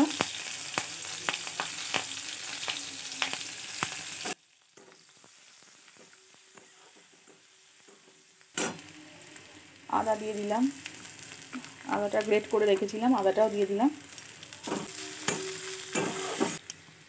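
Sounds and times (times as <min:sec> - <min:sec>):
food sizzling in hot oil: 0:00.0 - 0:17.0
metal spatula scraping a pan: 0:14.6 - 0:16.6.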